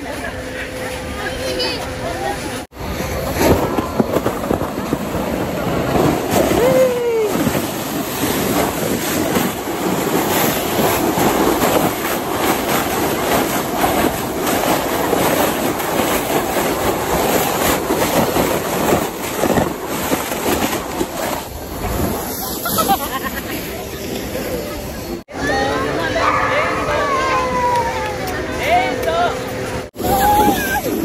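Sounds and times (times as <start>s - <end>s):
wind on microphone: 2.7s - 22.4s
sled scraping over snow: 2.7s - 25.2s, 30.0s - 31.0s
person crying out: 6.5s - 7.4s.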